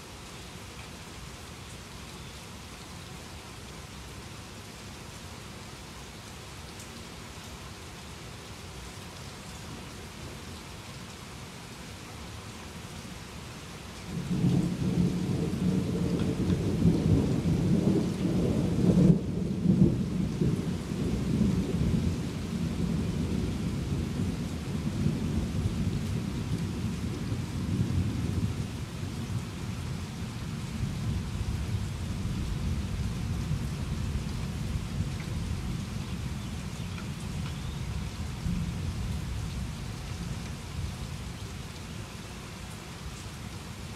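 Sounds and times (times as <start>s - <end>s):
steady rain falling: 0.0s - 43.9s
thunder rumbling: 14.1s - 30.1s.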